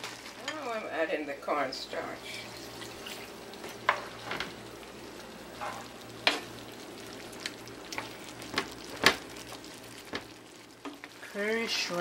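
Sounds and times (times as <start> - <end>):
sauce simmering and sizzling: 0.0 - 12.0
wooden spoon knocking on pan: 10.1 - 11.0.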